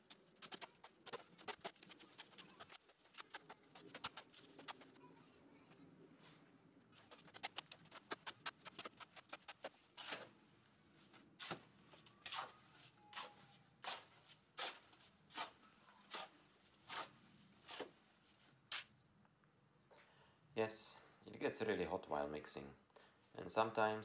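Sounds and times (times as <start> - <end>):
shovel scraping wet concrete: 7.0 - 10.4, 11.4 - 18.9.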